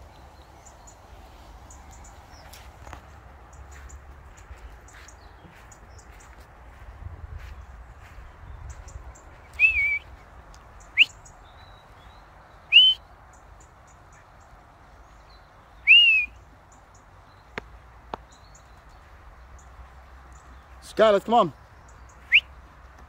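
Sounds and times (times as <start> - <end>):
small birds chirping: 0.0 - 23.0
person whistling: 9.6 - 10.0, 12.7 - 13.0, 15.9 - 16.4.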